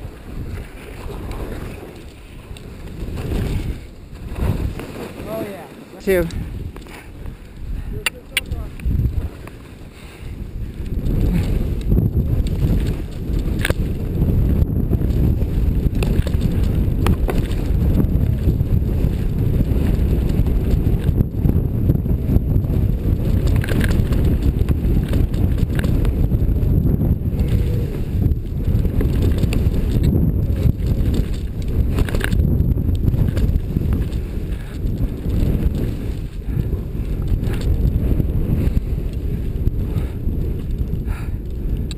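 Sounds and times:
skis rushing through snow: 0.0 - 7.6, 9.0 - 21.0, 22.6 - 41.3
wind rumbling on microphone: 0.0 - 41.9.

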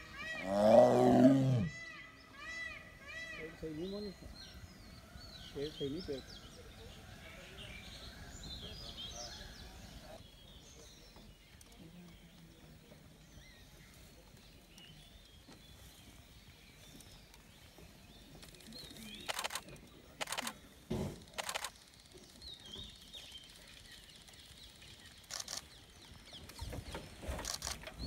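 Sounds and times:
small birds chirping: 0.0 - 28.0
bursts of clicking: 19.2 - 20.6, 21.3 - 22.2.

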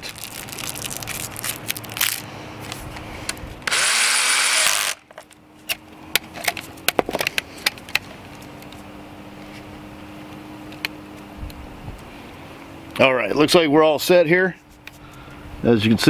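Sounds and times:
cordless drill driving a screw: 3.6 - 5.0.

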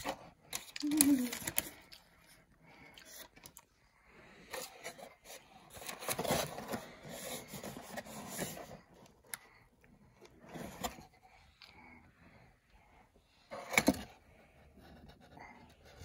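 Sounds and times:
paper and cardboard rustling: 0.0 - 2.0, 4.5 - 9.0.

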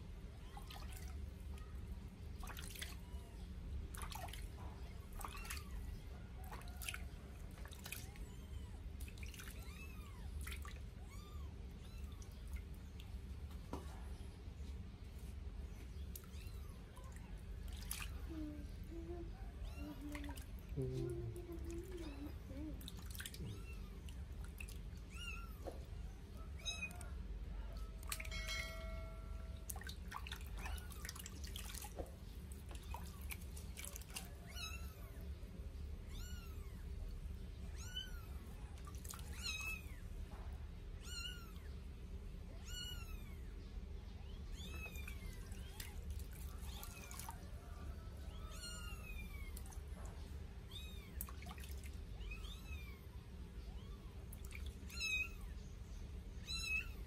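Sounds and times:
bath water splashing and dripping: 3.9 - 5.7, 22.8 - 24.9, 29.6 - 34.4, 51.2 - 52.0.

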